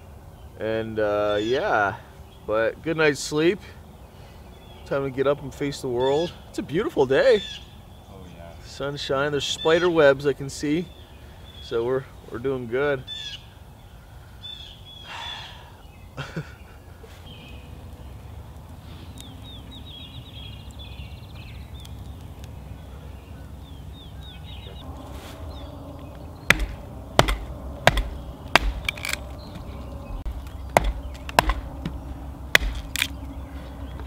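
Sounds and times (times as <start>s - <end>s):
bird singing trilled phrases: 0.4s - 16.2s, 17.2s - 18.3s, 19.1s - 34.0s
hatchet chopping kindling: 26.5s - 33.2s.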